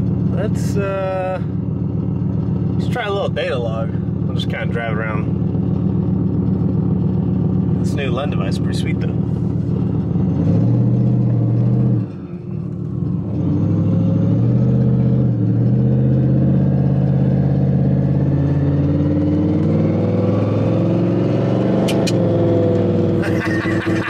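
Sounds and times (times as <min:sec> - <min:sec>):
engine pulling while driving: 0:00.0 - 0:24.0
sharp clicks: 0:21.8 - 0:22.2.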